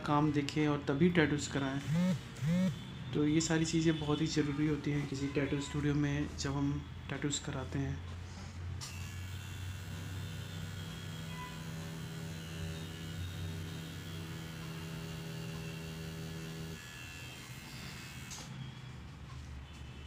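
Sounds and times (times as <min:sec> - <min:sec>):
tattoo machine buzzing: 0:01.8 - 0:02.8, 0:08.8 - 0:18.6.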